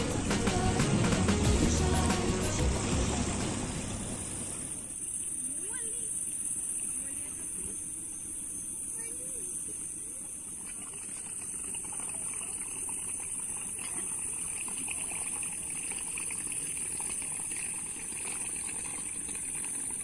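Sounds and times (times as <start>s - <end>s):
outboard engine idling: 0.0s - 6.0s.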